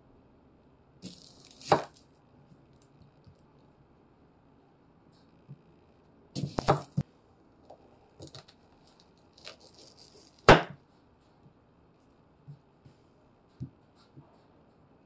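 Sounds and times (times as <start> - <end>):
knife slicing onion: 1.0 - 2.0, 6.4 - 7.0, 9.4 - 10.8.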